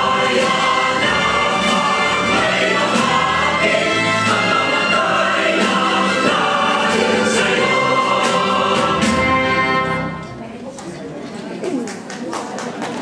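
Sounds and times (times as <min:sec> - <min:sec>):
choir singing: 0:00.0 - 0:10.2
instrumental accompaniment: 0:00.0 - 0:10.4.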